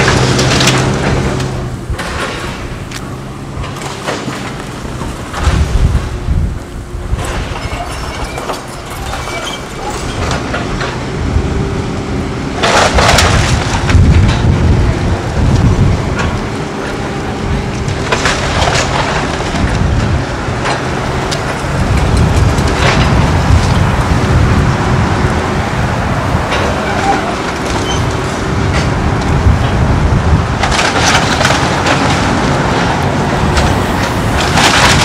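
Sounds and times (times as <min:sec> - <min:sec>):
splintering timber crashes: 0:00.0 - 0:02.9, 0:12.6 - 0:14.5, 0:17.9 - 0:23.9, 0:30.6 - 0:35.0
excavator engine and hydraulic drone: 0:00.0 - 0:35.0.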